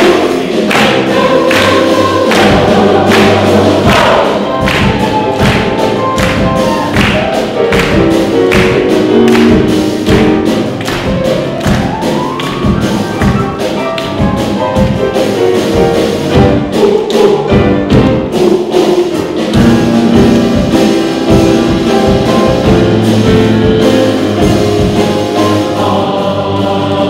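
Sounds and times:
choir singing: 0.0 - 7.7, 16.2 - 27.0
drum kit: 0.0 - 27.0
grand piano: 0.0 - 27.0.

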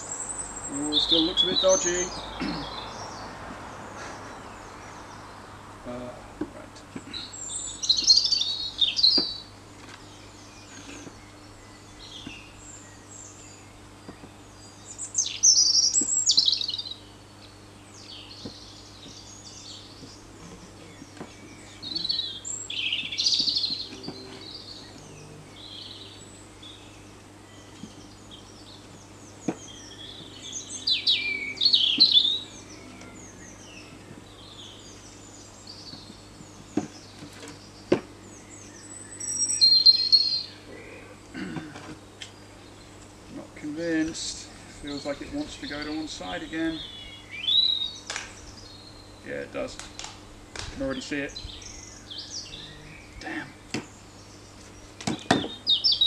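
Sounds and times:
birds chirping and trilling: 0.0 - 56.0.

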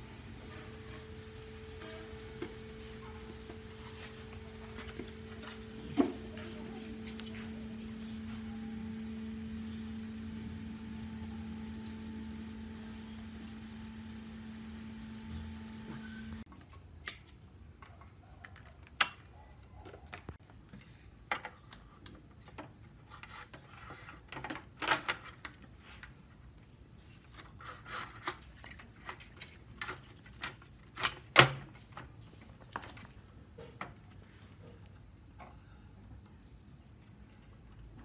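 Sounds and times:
steady hum: 0.0 - 16.5.

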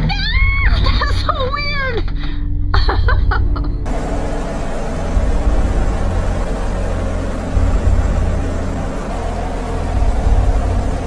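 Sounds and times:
storm wind buffeting microphone: 3.9 - 11.0.

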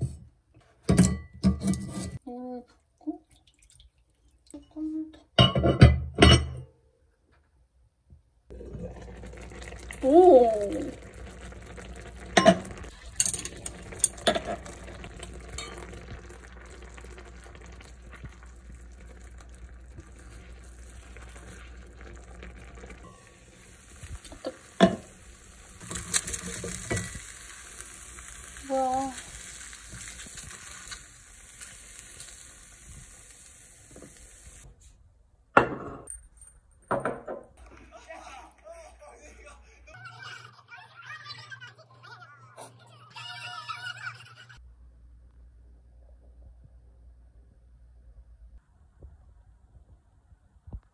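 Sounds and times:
dumplings sizzling in oil: 8.6 - 34.7.

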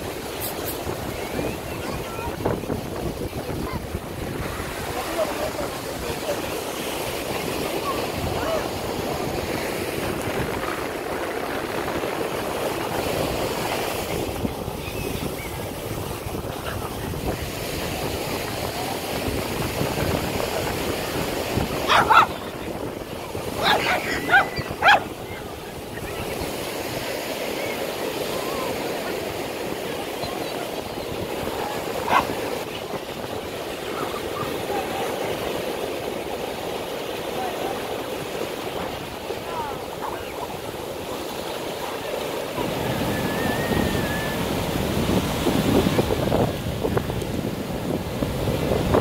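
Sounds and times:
wind buffeting microphone: 0.0 - 27.1, 42.5 - 49.0
sea surf: 0.0 - 49.0.

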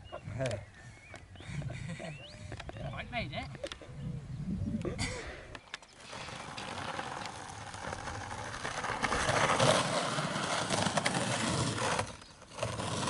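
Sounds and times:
skateboard wheels rolling on grit: 5.6 - 13.0.

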